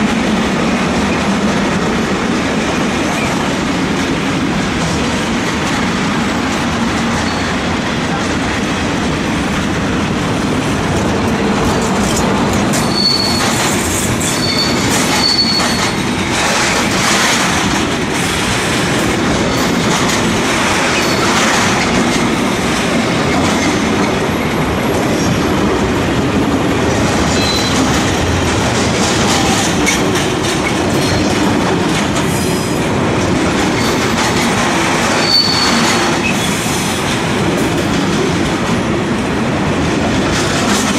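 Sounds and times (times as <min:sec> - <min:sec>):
freight train rumbling and clattering: 0:00.0 - 0:40.9
train wheel squeals: 0:07.2 - 0:07.6, 0:12.7 - 0:16.1, 0:21.0 - 0:21.4, 0:27.3 - 0:27.9, 0:35.1 - 0:37.0.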